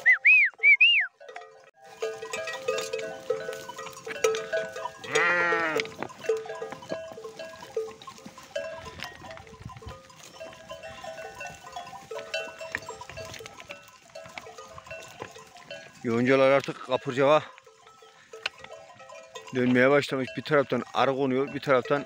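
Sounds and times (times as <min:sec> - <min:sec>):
sheep bells clinking: 0:00.0 - 0:22.0
sheep bleat: 0:04.6 - 0:06.0.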